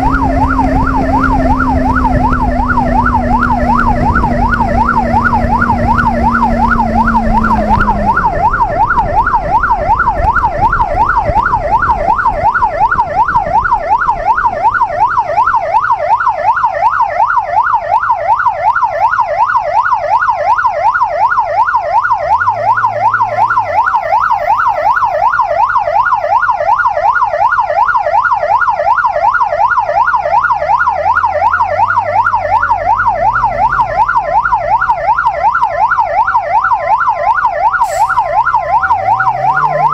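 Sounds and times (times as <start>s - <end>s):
motorcycle engine revving: 0.0s - 9.6s, 38.3s - 39.9s
electronic siren yelping: 0.0s - 39.9s.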